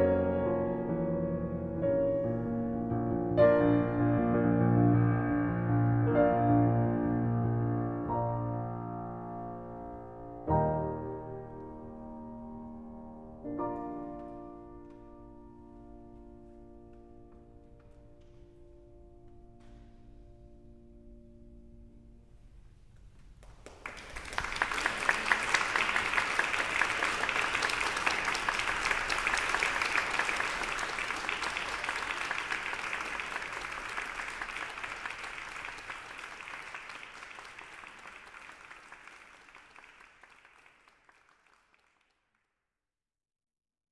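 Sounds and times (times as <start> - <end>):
audience applauding: 23.4 - 42.2.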